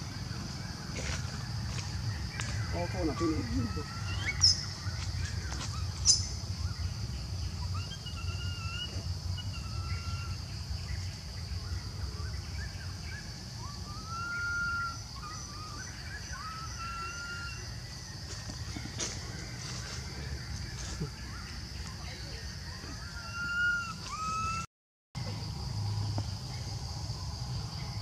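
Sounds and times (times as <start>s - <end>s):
young monkey whistle-like calls: 7.6s - 10.4s, 13.6s - 17.7s.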